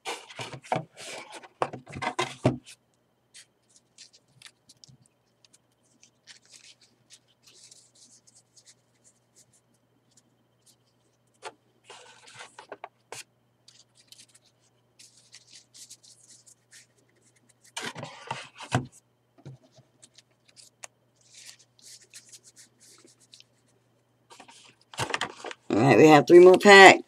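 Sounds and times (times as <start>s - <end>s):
cards rustling on a wooden table: 0.0s - 23.7s, 24.3s - 25.7s
cards shuffling with knocks: 3.4s - 9.5s, 11.4s - 23.7s.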